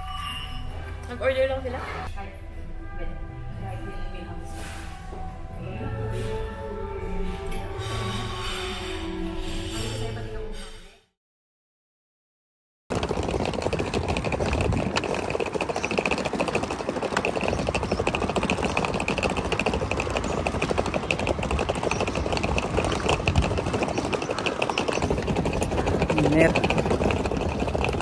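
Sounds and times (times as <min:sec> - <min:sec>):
suitcase wheels rattling on bricks: 0:12.9 - 0:28.0.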